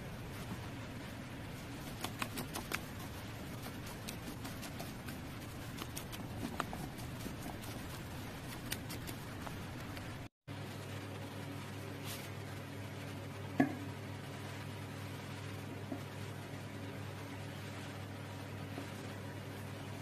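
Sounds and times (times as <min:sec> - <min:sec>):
steady low hum: 0:00.0 - 0:20.0
wooden spoon stirring thick mixture: 0:02.2 - 0:10.0.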